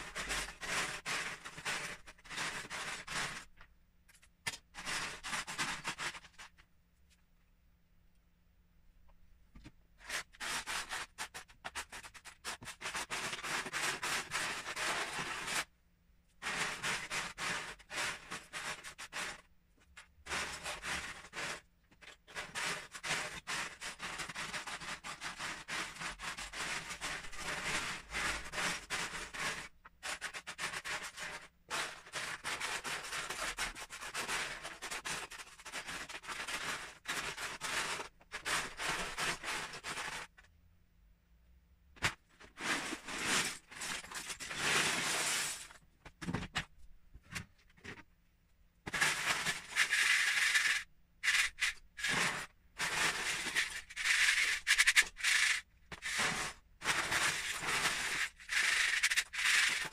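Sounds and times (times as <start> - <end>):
plastic bricks clattering in a tub: 0.0 - 6.6, 16.4 - 40.5, 42.0 - 46.7, 48.9 - 59.9.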